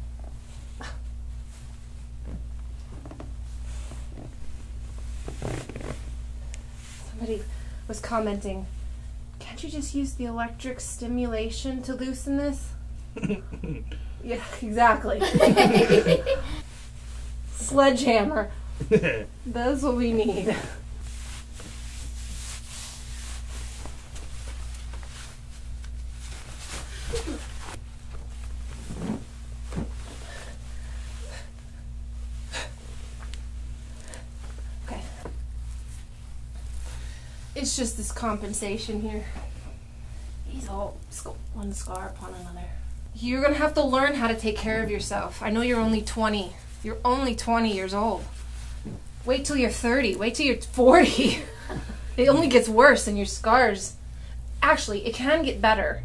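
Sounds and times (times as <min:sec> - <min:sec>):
cloth rubbing on skin: 0:00.1 - 0:09.0, 0:15.4 - 0:40.9, 0:43.4 - 0:51.4
skin rustling: 0:01.8 - 0:06.2
soft breaths: 0:29.9 - 0:37.7.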